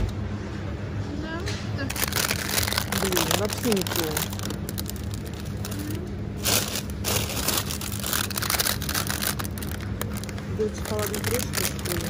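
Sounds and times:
steady low hum: 0.0s - 12.0s
plastic wrappers crinkling: 1.9s - 12.0s.

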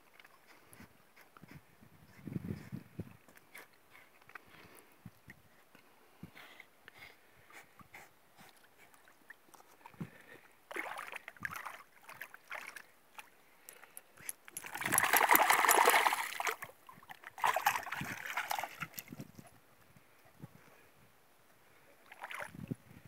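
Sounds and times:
dog splashing through water: 10.7s - 12.8s, 14.5s - 16.7s, 17.3s - 19.2s.

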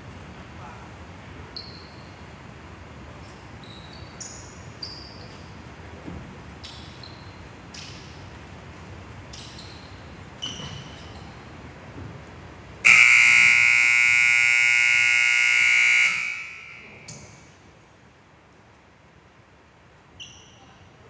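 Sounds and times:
scoreboard buzzer: 12.9s - 17.1s.

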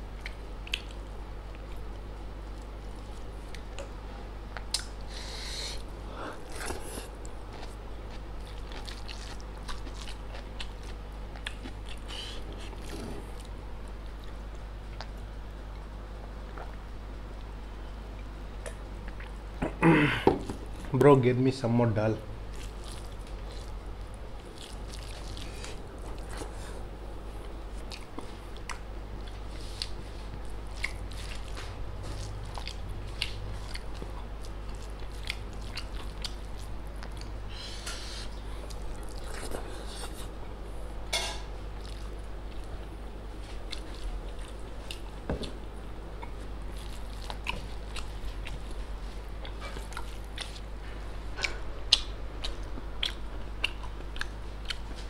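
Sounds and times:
chewing and mouth smacks: 0.1s - 5.1s, 6.5s - 17.5s, 18.1s - 19.8s, 22.5s - 37.4s, 38.6s - 40.3s, 41.7s - 45.6s, 46.2s - 50.7s, 51.4s - 55.0s.

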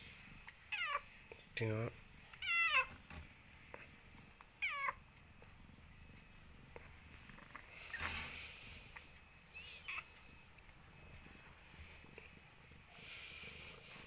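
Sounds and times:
cat meowing: 2.4s - 2.9s, 4.6s - 5.0s.

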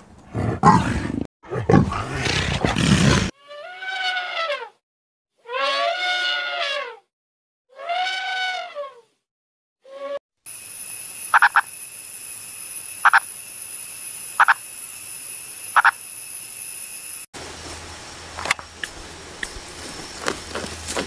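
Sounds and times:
high-pitched ringing: 10.5s - 17.3s
frog calling: 11.2s - 11.8s, 12.9s - 13.4s, 14.2s - 17.2s.

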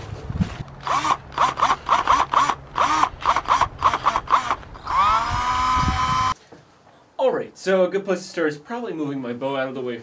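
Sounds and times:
cordless drill motor whining: 0.8s - 6.4s.

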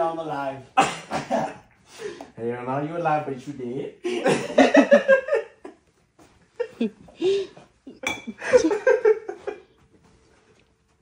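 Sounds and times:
young men laughing: 4.0s - 5.8s, 6.5s - 9.7s.

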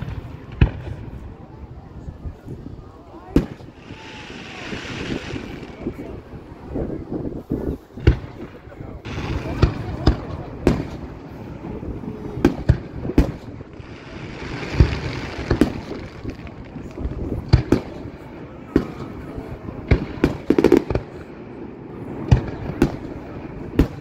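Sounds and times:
fireworks bangs: 0.0s - 1.6s, 3.2s - 24.0s
fireworks hiss: 3.4s - 6.2s, 9.0s - 18.2s.

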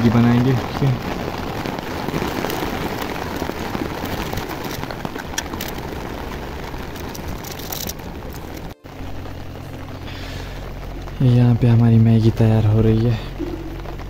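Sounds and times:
heavy rain on tent fabric: 0.0s - 14.0s.

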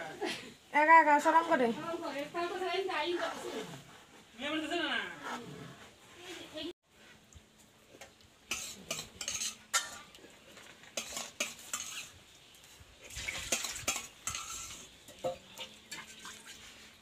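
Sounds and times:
metal ladle scraping a pot: 8.5s - 17.0s
liquid splashing: 13.0s - 17.0s.

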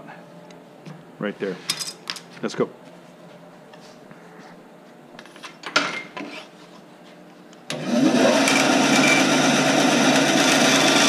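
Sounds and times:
bandsaw cutting wood: 7.7s - 11.0s.

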